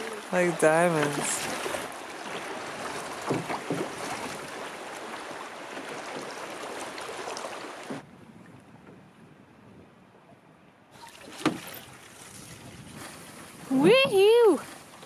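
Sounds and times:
water splashing along canoe hull: 0:00.0 - 0:15.0
wind: 0:00.0 - 0:15.0.

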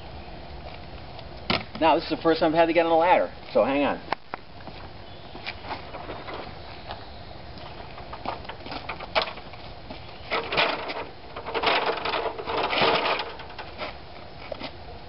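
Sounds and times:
stepladder rattling and scraping: 0:05.8 - 0:06.6, 0:07.7 - 0:09.6, 0:10.2 - 0:14.0.

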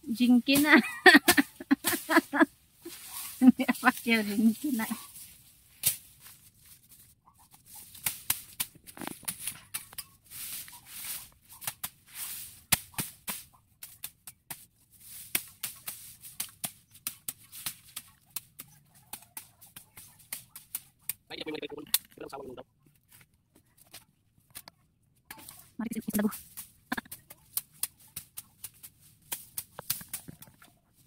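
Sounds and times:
machete slashing through grass: 0:05.0 - 0:06.8, 0:07.7 - 0:18.6.

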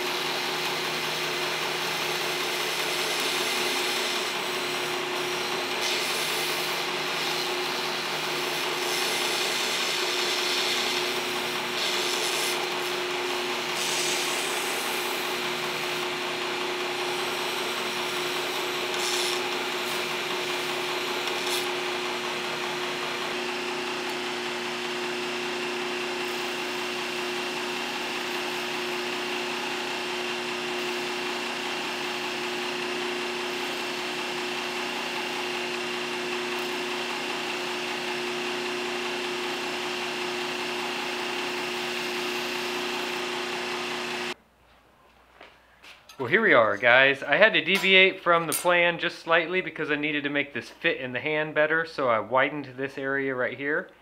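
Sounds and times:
belt grinder motor hum: 0:00.0 - 0:44.4
belt grinding metal hiss: 0:13.7 - 0:15.2, 0:18.8 - 0:21.8.

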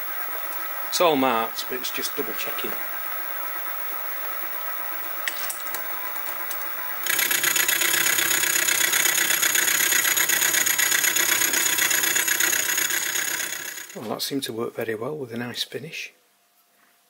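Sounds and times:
mill cutter milling metal: 0:07.0 - 0:14.1.

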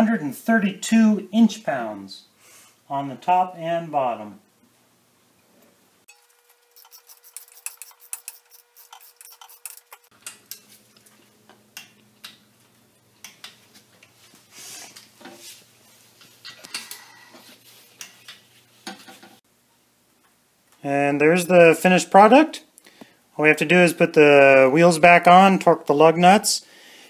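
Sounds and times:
hand tools clicking and clinking: 0:06.1 - 0:11.1.

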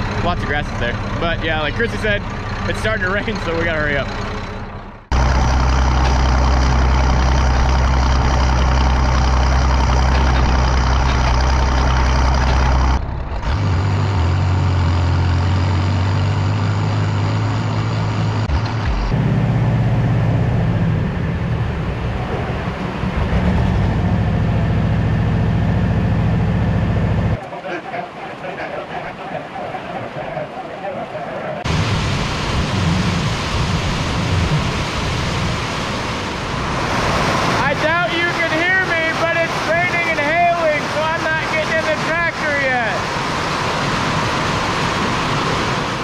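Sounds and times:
tractor engine running: 0:00.0 - 0:30.6.

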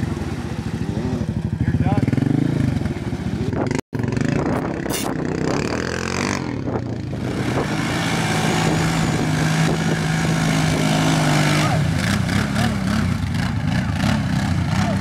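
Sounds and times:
quad engine revving: 0:00.0 - 0:15.0.

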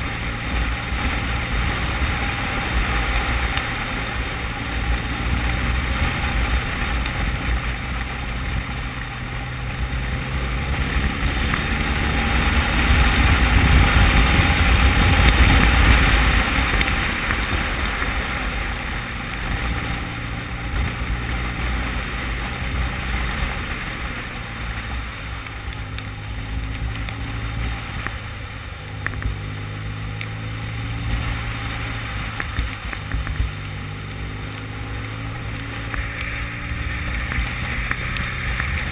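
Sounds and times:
motorcycle engine running: 0:00.0 - 0:38.9
wind rush on microphone: 0:00.0 - 0:38.9.

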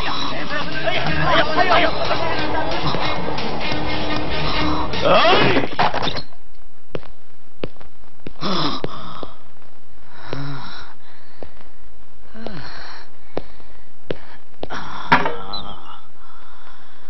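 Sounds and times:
men groaning in pain: 0:00.0 - 0:03.4, 0:04.8 - 0:05.8.

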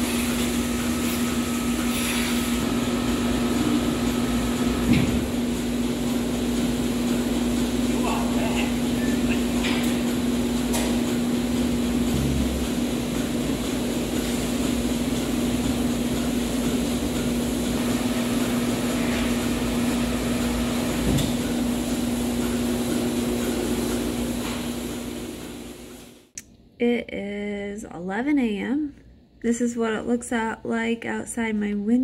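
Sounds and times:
machinery humming: 0:00.0 - 0:26.2.

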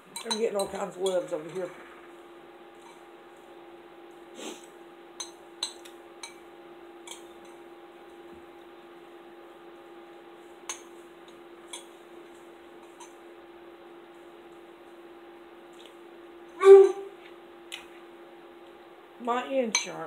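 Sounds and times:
steady low hum: 0:00.0 - 0:20.0
spoon clinking on ceramic bowl: 0:00.1 - 0:01.3, 0:05.2 - 0:06.4, 0:07.1 - 0:07.6.

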